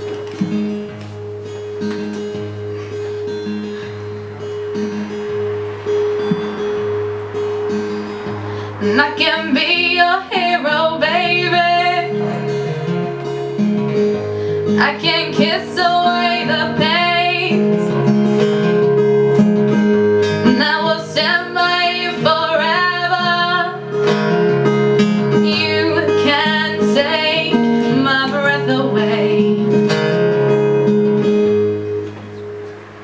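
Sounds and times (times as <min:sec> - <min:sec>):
acoustic guitar strumming: 0:00.0 - 0:33.0
woman singing: 0:08.9 - 0:12.4, 0:14.7 - 0:18.0, 0:20.4 - 0:23.9, 0:25.3 - 0:29.9.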